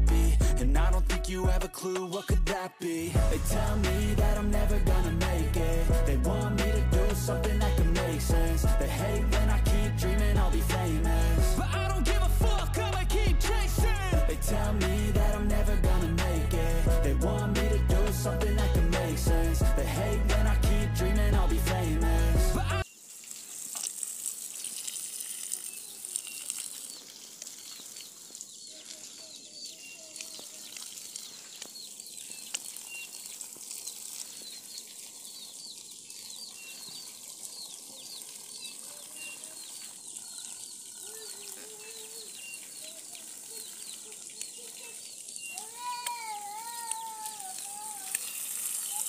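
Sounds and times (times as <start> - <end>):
garden hose spraying water: 19.8 - 49.0
water pattering on leaves: 22.8 - 49.0
small high chirps: 24.6 - 49.0.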